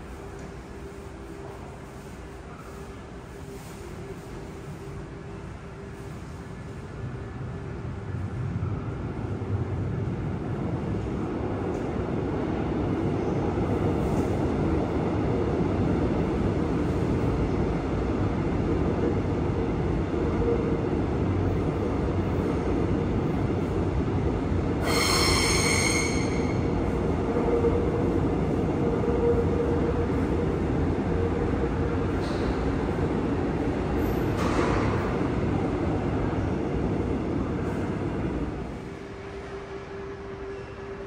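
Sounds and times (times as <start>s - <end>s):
train rumbling on track: 0.0s - 41.0s
high squeal: 24.8s - 26.7s.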